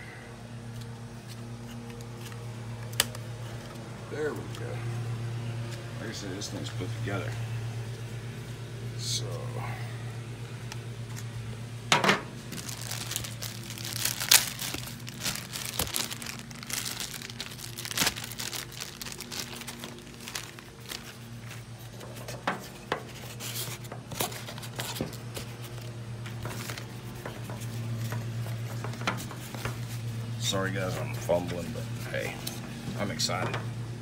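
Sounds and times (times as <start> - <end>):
steady low hum: 0.0 - 34.0
cardboard and packing rustling: 12.0 - 33.7.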